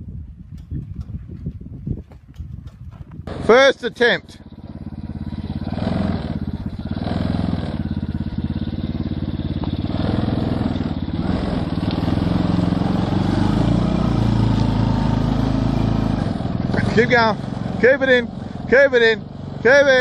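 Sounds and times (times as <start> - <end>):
small engine running hard: 3.2 - 20.0.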